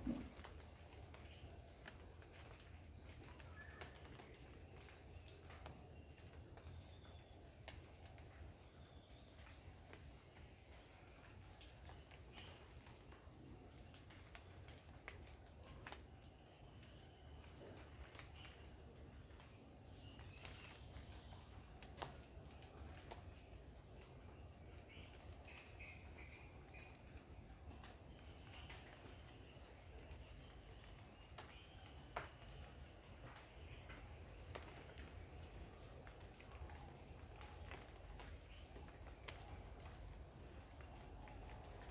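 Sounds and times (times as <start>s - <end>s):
insect drone: 24.9s - 33.9s.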